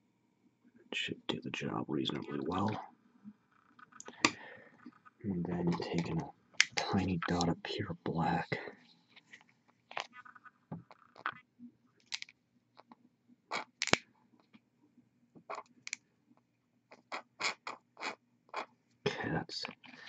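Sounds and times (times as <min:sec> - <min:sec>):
faint low hum: 0:00.3 - 0:03.4, 0:04.0 - 0:09.0, 0:19.1 - 0:20.0.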